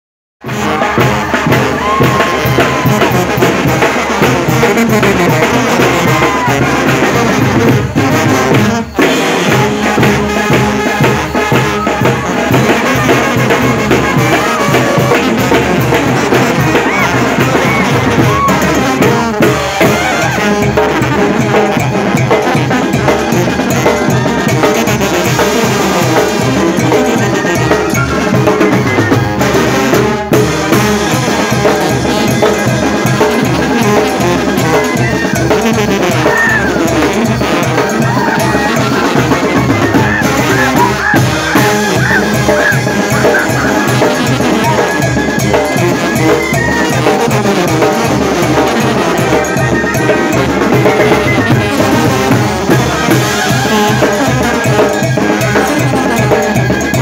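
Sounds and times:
brass band playing: 0:00.4 - 0:57.0
crowd voices: 0:00.4 - 0:57.0
drum beat: 0:00.4 - 0:57.0.

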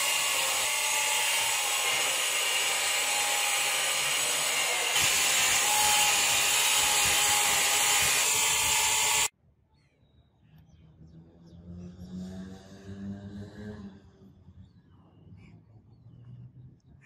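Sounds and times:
bench grinder polishing blade: 0:00.0 - 0:09.3.

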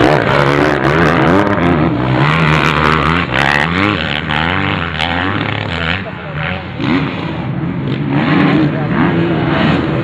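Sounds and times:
motocross engines revving: 0:00.0 - 0:10.0.

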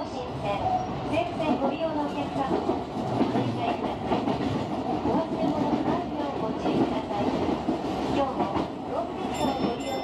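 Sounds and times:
train running rumble: 0:00.2 - 0:10.0.

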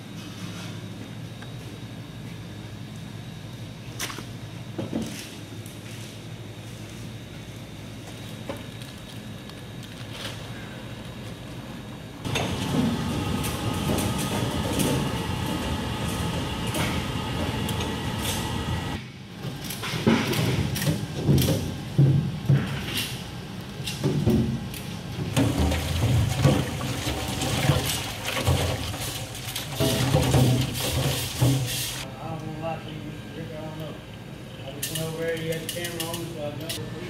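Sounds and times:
faint hum: 0:00.0 - 0:19.5
water sloshing in a sink: 0:25.4 - 0:31.7.

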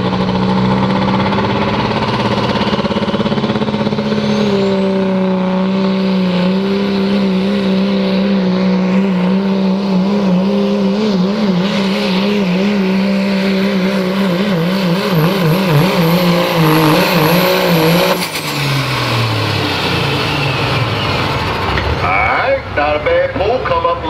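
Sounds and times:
diesel truck engine at full throttle: 0:00.0 - 0:24.0.

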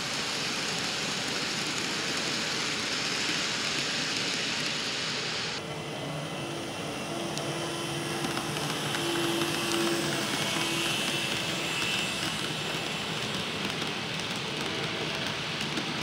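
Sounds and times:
steady hiss: 0:00.0 - 0:05.6
model train motors humming and whining: 0:00.0 - 0:16.0.

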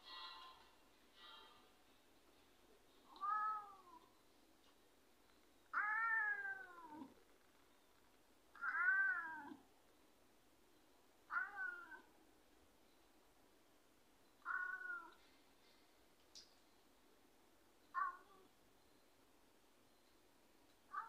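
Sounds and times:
cat meowing: 0:03.1 - 0:04.1, 0:05.7 - 0:07.2, 0:08.6 - 0:09.6, 0:11.3 - 0:12.1, 0:14.4 - 0:15.2, 0:17.9 - 0:18.5.

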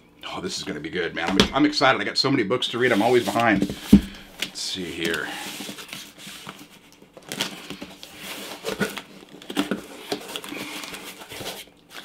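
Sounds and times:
packaging crinkling and tearing: 0:04.4 - 0:12.0.

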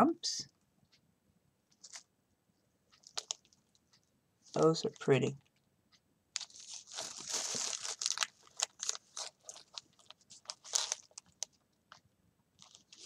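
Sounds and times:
plastic packets crinkling: 0:01.8 - 0:02.0, 0:03.0 - 0:03.6, 0:06.4 - 0:12.0, 0:12.6 - 0:13.0.

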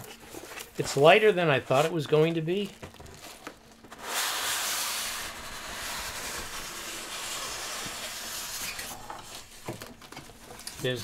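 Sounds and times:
styrofoam scraping out of cardboard box: 0:03.9 - 0:09.5.

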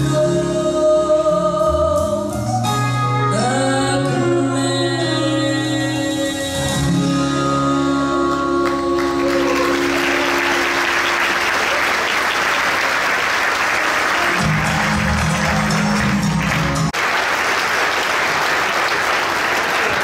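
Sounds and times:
gospel song with backing music: 0:00.0 - 0:11.6
audience applause: 0:08.6 - 0:20.0.

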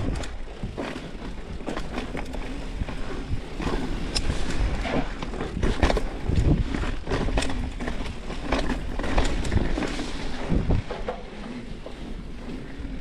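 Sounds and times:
bike knocks and rattles: 0:00.0 - 0:13.0
tyres rumbling over dirt: 0:00.0 - 0:13.0
wind buffeting microphone: 0:02.6 - 0:11.1.

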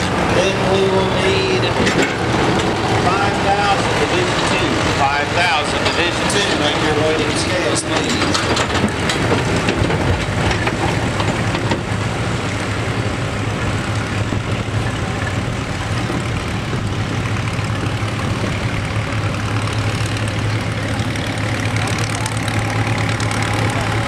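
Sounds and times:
tractor diesel engines running: 0:00.0 - 0:24.0.

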